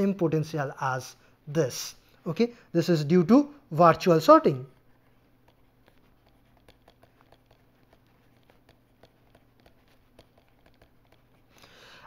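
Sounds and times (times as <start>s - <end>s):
stylus tapping and sliding: 4.6s - 11.8s.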